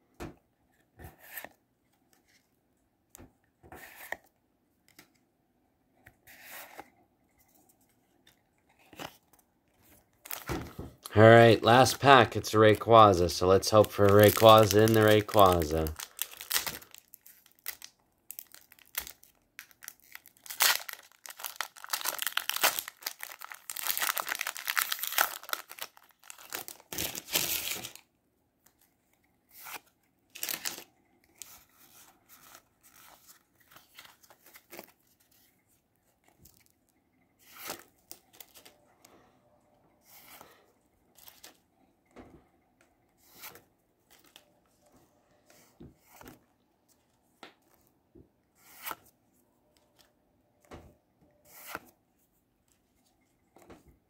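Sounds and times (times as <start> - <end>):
cards sliding: 6.2 - 6.9, 29.5 - 30.8, 43.2 - 43.6, 48.6 - 49.1, 51.5 - 51.9
foil wrapper tearing and crinkling: 13.7 - 28.0, 30.4 - 30.8.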